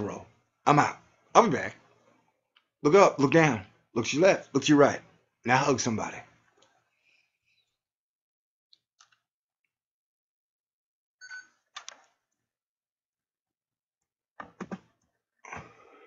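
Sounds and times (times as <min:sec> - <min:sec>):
clicking and knocking: 0:14.4 - 0:14.9.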